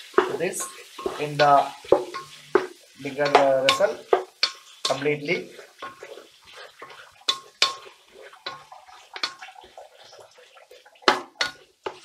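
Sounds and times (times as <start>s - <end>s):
utensil scraping steel pot: 0.0s - 12.0s
utensil clinking on pot: 0.1s - 5.0s, 6.8s - 9.6s, 11.0s - 12.0s.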